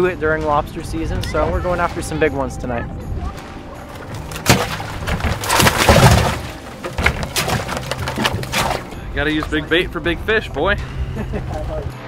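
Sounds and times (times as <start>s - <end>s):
water splash: 3.4s - 9.6s
plastic basket clattering: 4.2s - 8.9s.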